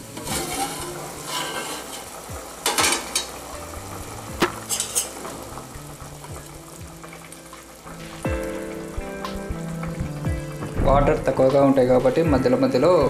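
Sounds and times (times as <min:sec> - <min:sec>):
metal pot lid clattering: 0:00.0 - 0:03.4, 0:04.3 - 0:05.5
spoon scraping inside pot: 0:00.1 - 0:03.3, 0:04.5 - 0:05.2.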